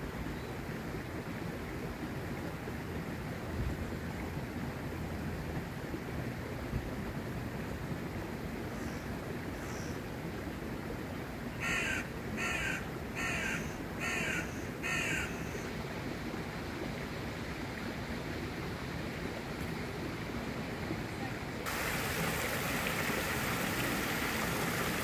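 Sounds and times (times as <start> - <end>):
steady background hiss: 0.0 - 25.0
crow cawing: 11.6 - 15.6.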